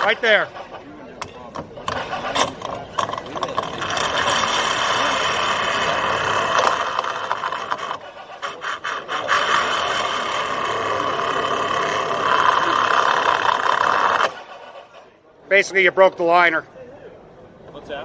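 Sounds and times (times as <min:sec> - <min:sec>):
cutter grinding inside pipe: 0:01.8 - 0:15.0.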